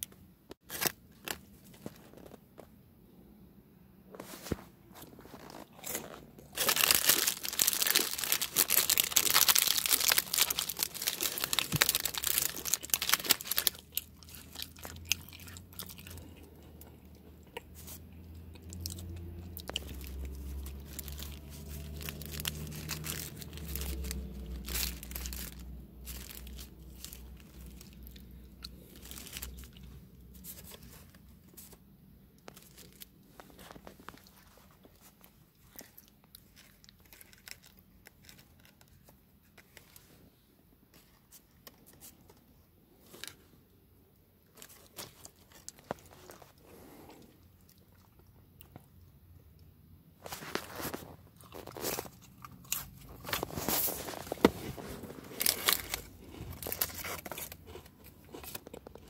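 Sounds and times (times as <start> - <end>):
crinkling wrapper: 0.0 - 2.7, 4.1 - 43.5, 44.4 - 49.1, 50.2 - 59.0
chewing crackers: 5.0 - 31.7, 32.4 - 39.2, 44.4 - 49.7, 50.7 - 54.3, 55.3 - 59.0.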